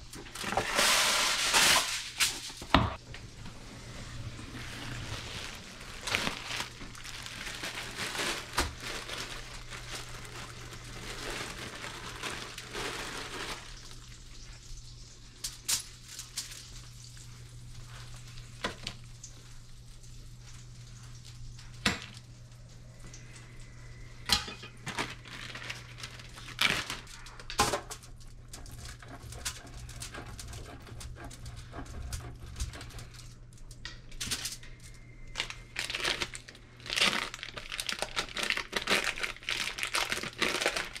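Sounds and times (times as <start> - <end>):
plastic bag crinkling: 3.2 - 14.5, 24.4 - 27.5, 32.7 - 41.0.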